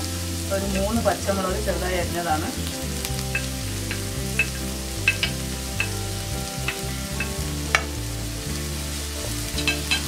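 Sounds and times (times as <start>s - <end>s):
onions sizzling in hot oil: 0.0s - 10.0s
sharp ticks: 3.3s - 6.0s.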